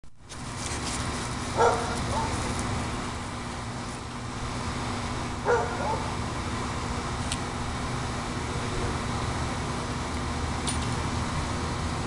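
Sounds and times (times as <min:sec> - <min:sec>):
dog barking: 0:01.6 - 0:02.4, 0:05.4 - 0:06.1.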